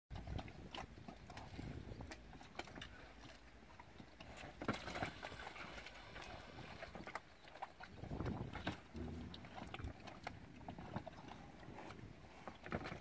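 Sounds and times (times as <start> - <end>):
knocks and clatter of hooves: 0.1 - 13.0
floating balls clattering: 4.5 - 7.0.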